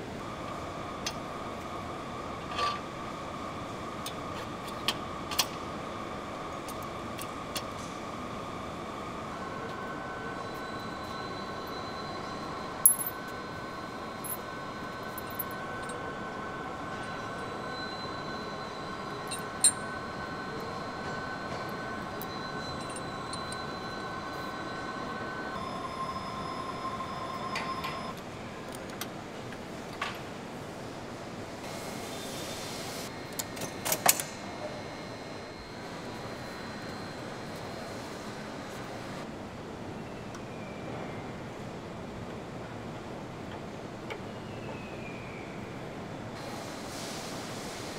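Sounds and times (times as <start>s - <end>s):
workshop background hum: 0.0s - 47.9s
faint whining tones: 7.4s - 28.2s.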